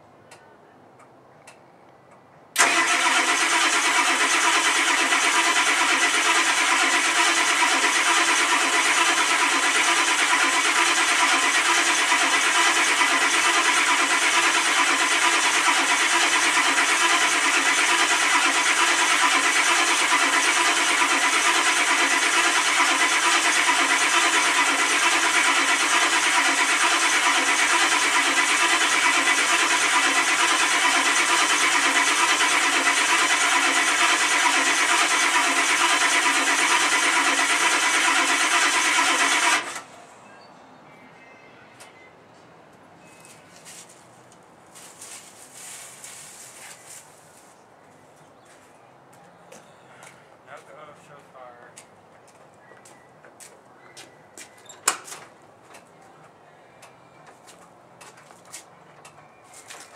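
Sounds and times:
starter motor cranking diesel engine: 2.6s - 39.9s.

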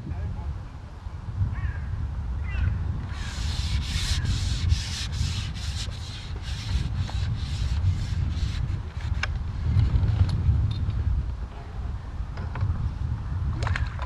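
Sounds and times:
wind rumble on microphone: 0.0s - 14.0s
rhythmic scraping strokes: 3.1s - 9.2s.

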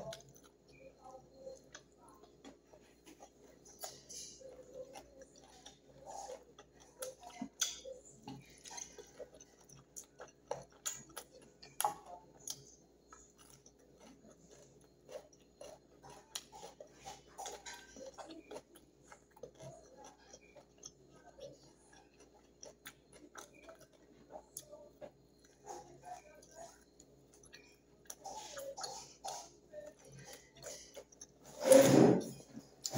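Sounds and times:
person chewing food: 0.0s - 32.9s.

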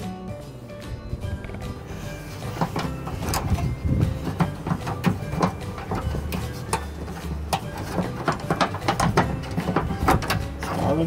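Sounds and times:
metal latch rods clicking: 2.6s - 11.0s.

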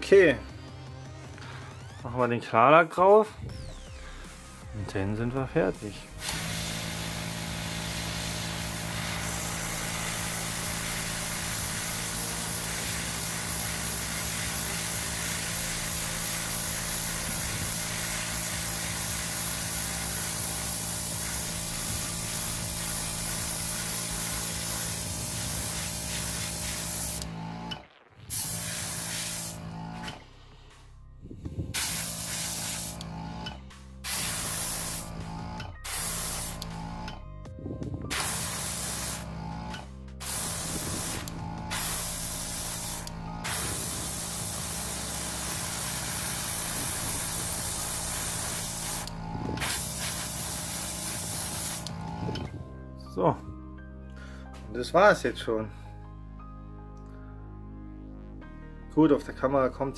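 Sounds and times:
airbrush spraying hiss: 6.1s - 27.3s, 28.3s - 30.8s, 31.7s - 33.0s, 34.0s - 36.8s, 38.1s - 39.3s, 40.2s - 52.4s.

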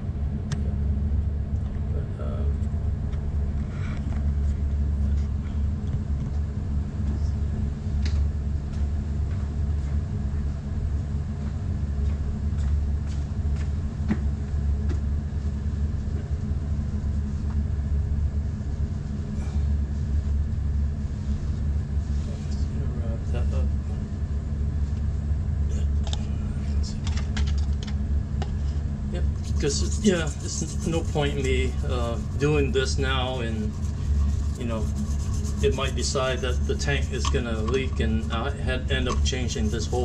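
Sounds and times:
low machine hum: 0.0s - 40.0s
faint handling clicks and knocks: 37.1s - 38.1s.

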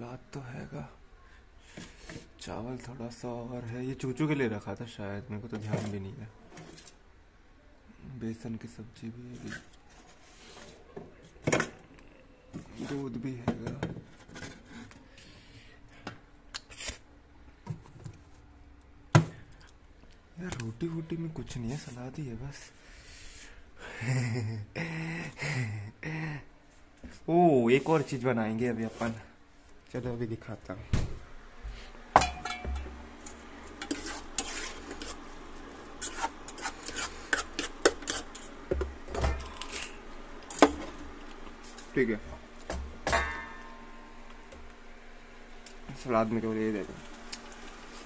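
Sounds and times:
steel bowls clicking and knocking: 32.2s - 32.9s
metal spoon scraping a pan: 32.2s - 35.4s, 36.0s - 38.6s.

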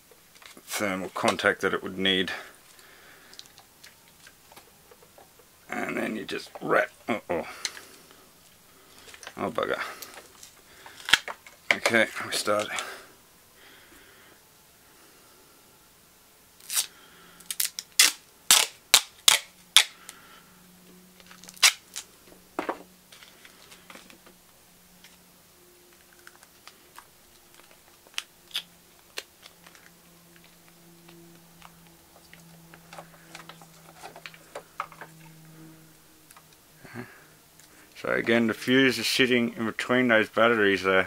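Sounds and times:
tape crackling and clicking: 2.6s - 5.5s, 6.4s - 12.9s, 16.6s - 20.2s, 20.9s - 25.2s, 25.8s - 38.8s
duct tape ripping off roll: 10.9s - 11.4s, 16.6s - 20.2s, 21.2s - 22.1s, 27.4s - 29.9s.

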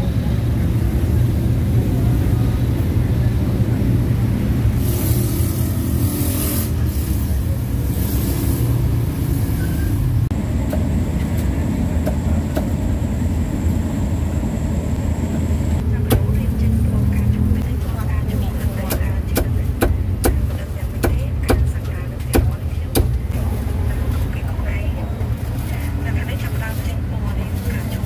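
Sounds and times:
traffic rumble: 0.0s - 28.0s
hiss of passing vehicles: 0.1s - 10.3s.

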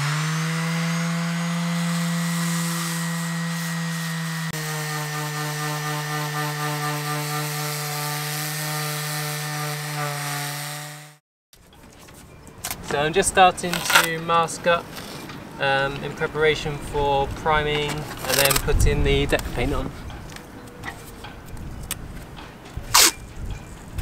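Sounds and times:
orbital sander running: 0.0s - 11.2s.

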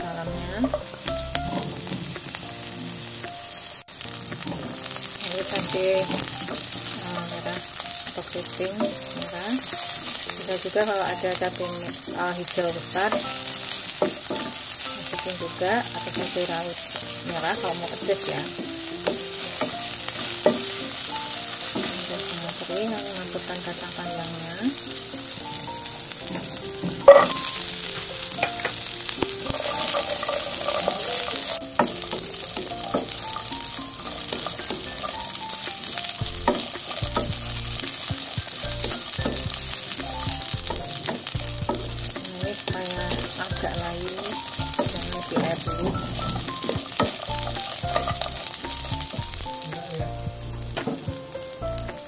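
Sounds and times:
beans sizzling in hot oil: 0.0s - 52.0s
loud frying burst: 0.0s - 52.0s
wooden spatula stirring: 26.2s - 49.9s.

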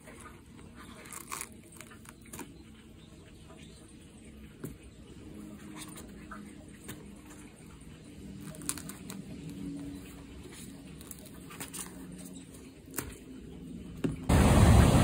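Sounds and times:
ocean surf: 14.3s - 15.0s.

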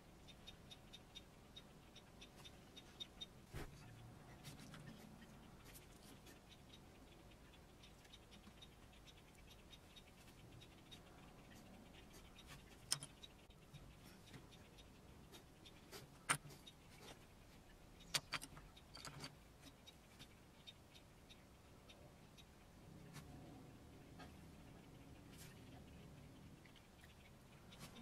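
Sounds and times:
small tools clicking and tapping: 12.4s - 13.5s, 15.8s - 17.2s, 18.0s - 20.3s.

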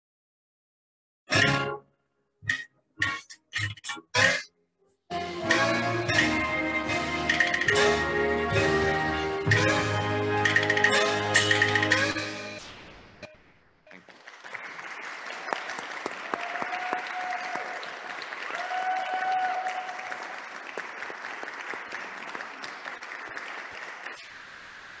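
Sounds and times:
audience applauding: 13.9s - 25.0s
crowd calling out: 18.5s - 20.2s.

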